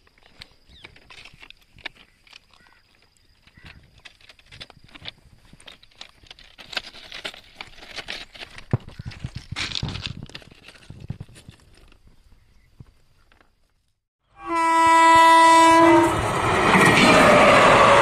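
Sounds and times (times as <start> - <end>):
footsteps on ballast stones: 0.0 - 14.0.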